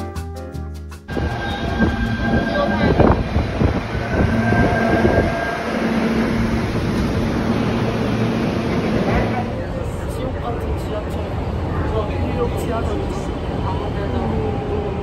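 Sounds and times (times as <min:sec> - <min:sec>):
thin squealing tones: 0:01.1 - 0:09.4
subway train rumble and clatter: 0:01.1 - 0:15.0.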